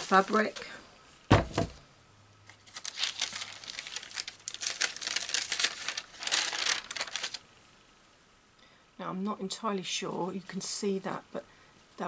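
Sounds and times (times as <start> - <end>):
paper crinkling: 0.0 - 0.7, 2.4 - 7.4.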